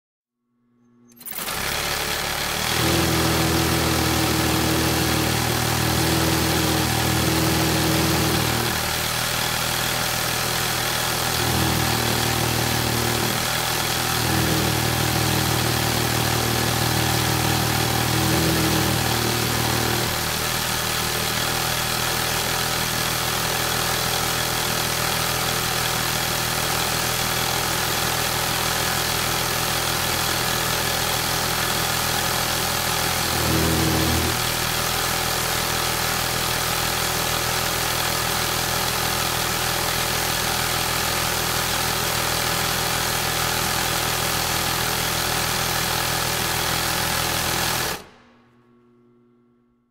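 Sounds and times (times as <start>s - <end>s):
mechanical whir: 0.8s - 5.2s
sewing machine humming: 1.1s - 48.5s.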